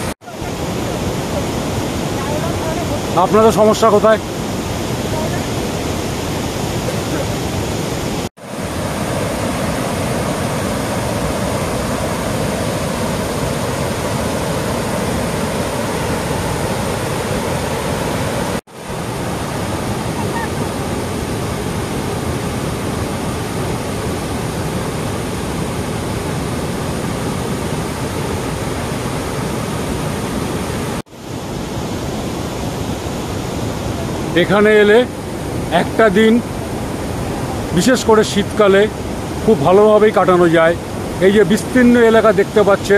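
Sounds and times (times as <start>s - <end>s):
waterfall rushing over rocks: 0.0s - 42.9s.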